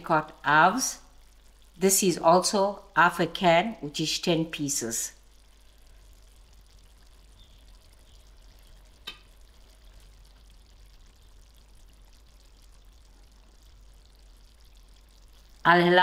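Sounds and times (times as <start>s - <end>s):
curry simmering in a pan: 0.0s - 16.0s.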